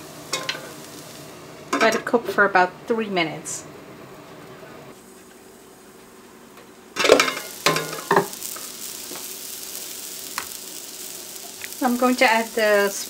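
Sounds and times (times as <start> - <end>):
vegetables sizzling in oil: 0.0 - 2.2, 4.9 - 13.0.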